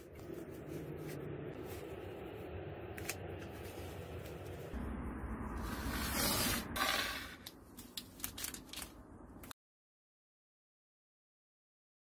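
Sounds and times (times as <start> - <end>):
plastic packet crinkling: 7.7 - 9.0.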